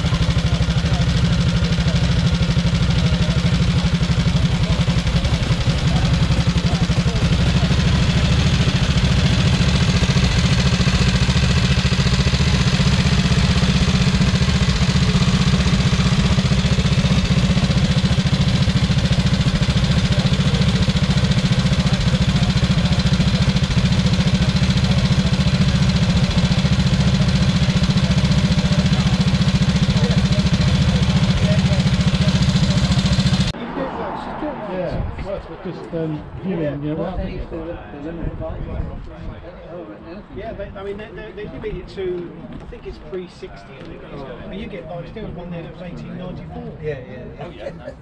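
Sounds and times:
motorcycle engine idling: 0.0s - 33.6s.

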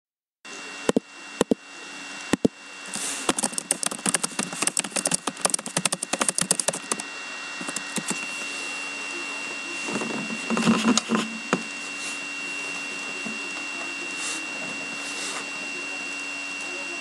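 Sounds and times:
laptop keyboard typing: 3.2s - 7.0s, 7.6s - 8.3s.

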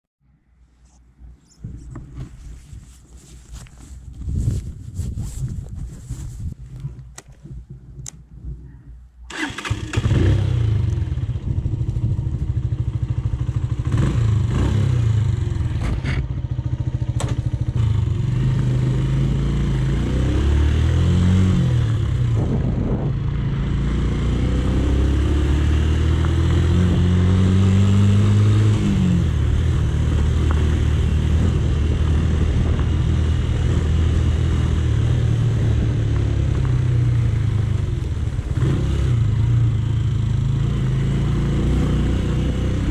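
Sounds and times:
motorcycle engine running: 9.3s - 20.1s, 21.3s - 42.9s.

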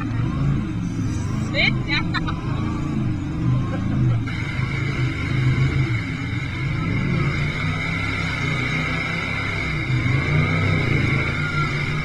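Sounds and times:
steady high tone: 0.0s - 3.9s.

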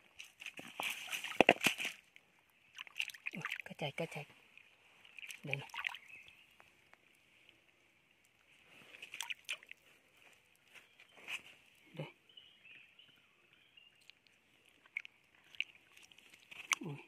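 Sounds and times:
hands splashing in muddy water: 0.2s - 2.0s, 2.8s - 3.8s, 5.1s - 6.1s, 8.8s - 9.8s.

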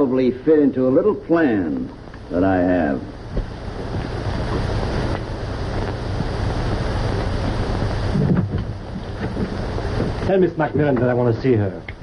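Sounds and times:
film soundtrack hiss: 0.0s - 12.0s
low hum: 0.0s - 12.0s.

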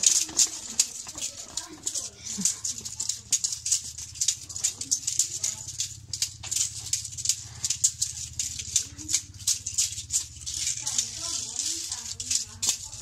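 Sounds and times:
dance sticks rattling: 0.0s - 13.0s
steady low hum: 0.0s - 13.0s.

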